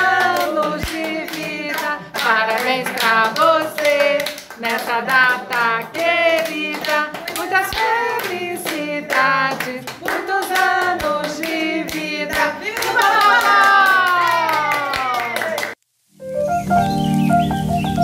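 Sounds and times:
people singing together: 0.0 - 13.8
hands clapping in rhythm: 0.0 - 15.8.

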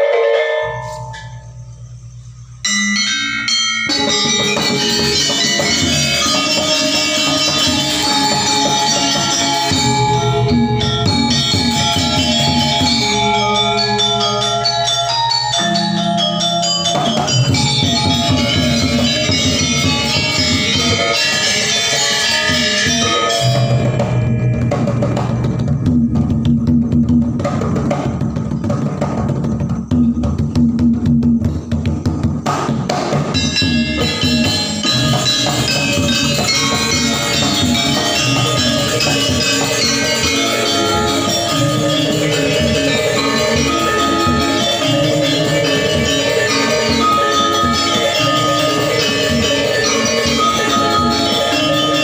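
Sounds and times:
low gong tone: 0.0 - 5.2, 22.5 - 26.9
bronze metallophone notes: 0.0 - 52.0
gamelan ensemble with drum: 0.0 - 52.0.

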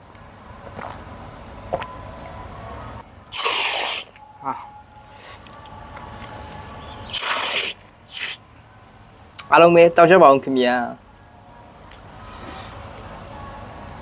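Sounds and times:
soda hissing from dispenser tap: 3.3 - 4.2, 7.1 - 8.4.

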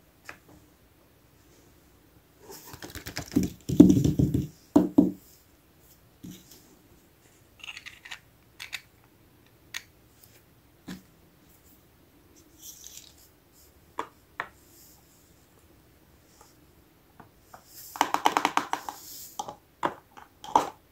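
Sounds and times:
plastic toy pieces clicking: 7.6 - 8.9.

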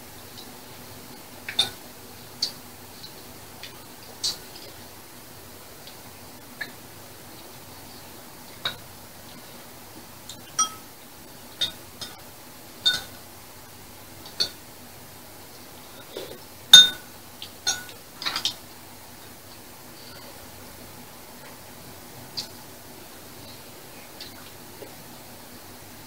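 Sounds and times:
utensils clinking on ceramic bowls: 10.4 - 10.9, 17.6 - 18.5.

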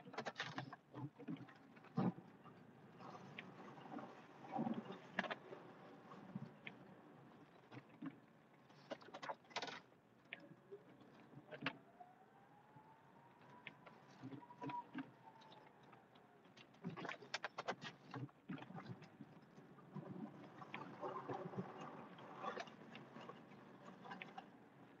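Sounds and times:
clicks and rattles: 0.0 - 2.2, 8.7 - 10.4, 16.5 - 19.0.

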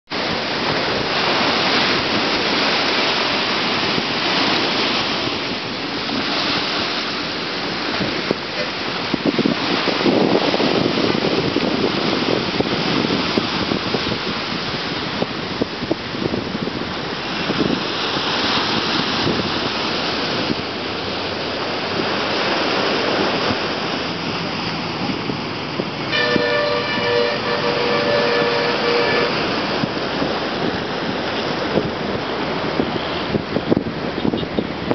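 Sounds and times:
waves breaking on beach: 0.1 - 34.9
horn held tone: 26.1 - 29.6.

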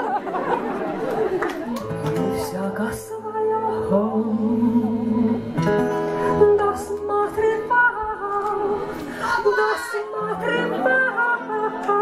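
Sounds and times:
acoustic guitar chords: 1.8 - 9.6.

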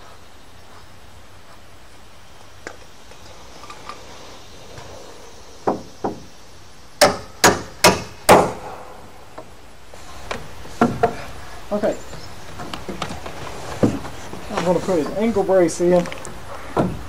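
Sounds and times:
hammer striking nail in wood: 7.0 - 8.8.

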